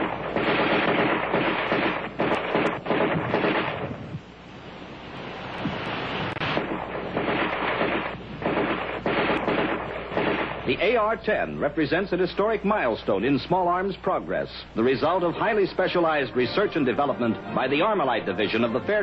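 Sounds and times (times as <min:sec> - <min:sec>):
rifle automatic fire bursts: 0:00.0 - 0:04.0, 0:06.4 - 0:11.0.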